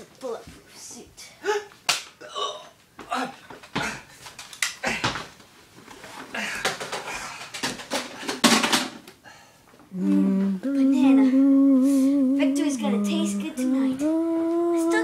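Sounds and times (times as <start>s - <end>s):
person humming: 9.9s - 15.0s.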